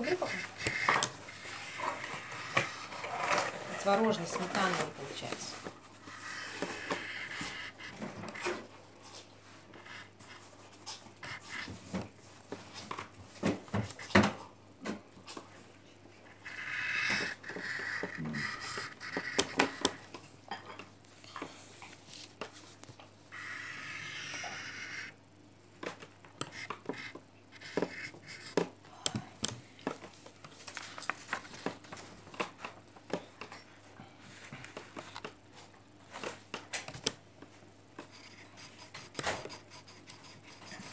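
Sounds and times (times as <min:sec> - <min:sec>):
pencil scratching on paper: 0:00.0 - 0:12.1, 0:16.3 - 0:20.1, 0:23.3 - 0:25.1, 0:26.4 - 0:28.7, 0:38.1 - 0:40.9.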